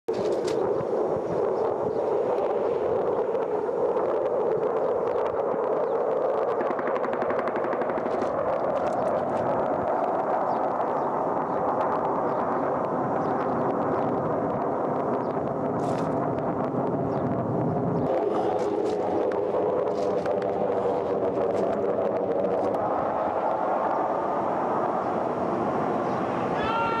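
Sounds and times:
fighter jet roaring overhead: 0.1s - 27.0s
automatic gunfire: 6.6s - 9.1s.

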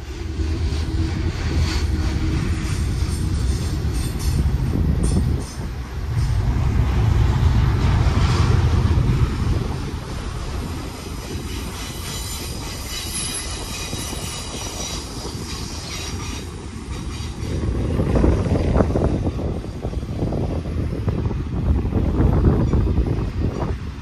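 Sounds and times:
train wheels rumbling on rails: 0.0s - 24.0s
high wheel squeal: 11.3s - 17.6s.

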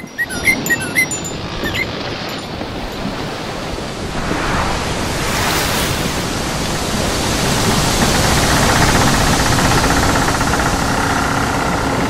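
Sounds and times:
loud rushing noise: 4.0s - 9.5s.

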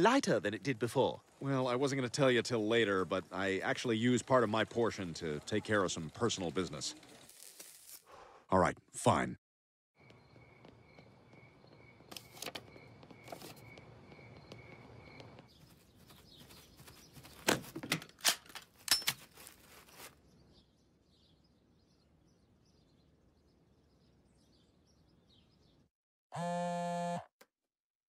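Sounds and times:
faint bird chirping: 10.0s - 17.4s, 19.8s - 25.9s
sharp knocks or footsteps: 10.0s - 19.6s.

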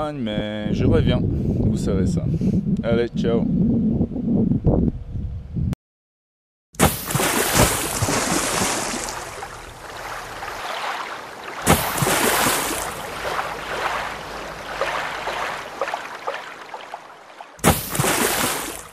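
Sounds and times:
water rushing and splashing: 6.8s - 18.9s.

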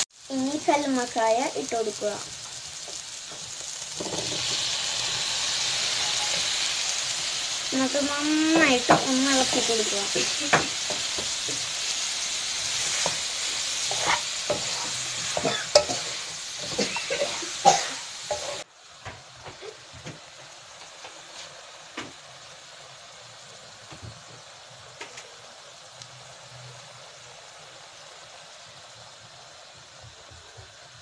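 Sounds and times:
mussels sizzling in hot oil: 0.0s - 31.0s
wooden spatula scraping pan: 12.6s - 17.6s.

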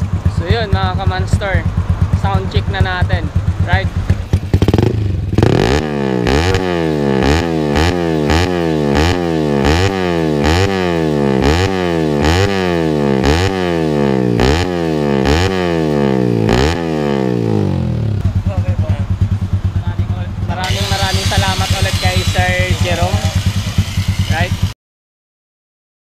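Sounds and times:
motorcycle engine revving: 0.0s - 24.8s.

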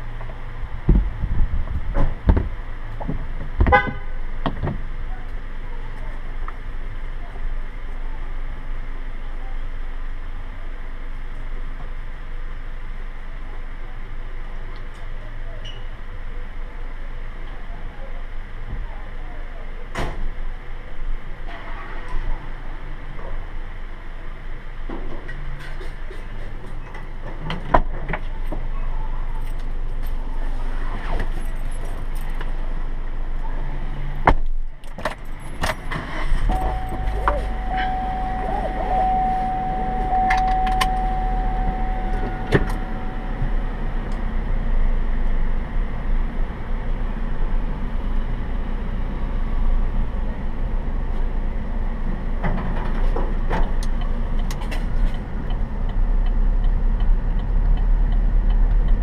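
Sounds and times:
car engine running: 29.3s - 59.0s
steady high tone: 35.8s - 46.7s.

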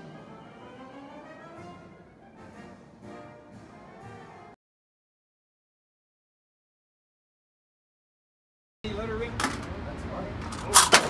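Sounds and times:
orchestral music with strings: 0.0s - 4.6s.

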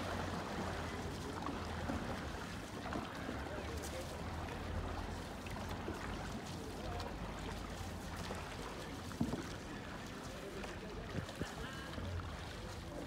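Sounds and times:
paddles splashing in water: 0.0s - 13.0s.

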